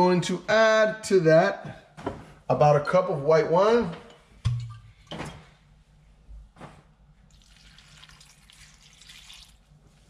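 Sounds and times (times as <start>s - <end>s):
wine pouring trickle: 7.3s - 9.8s.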